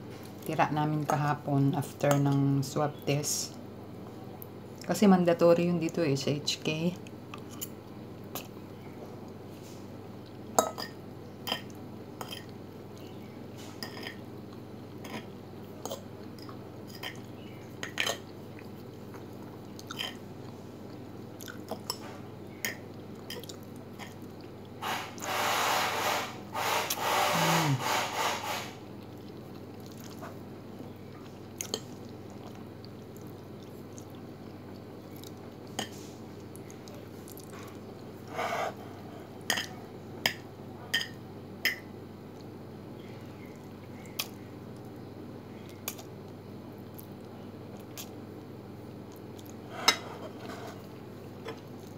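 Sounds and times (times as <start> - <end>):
steady low hum: 0.0 - 51.9
chewing: 13.8 - 24.8, 28.9 - 38.2, 46.8 - 48.2, 49.1 - 49.7
fork scraping a plate: 24.8 - 28.8, 38.3 - 39.2, 49.7 - 50.9.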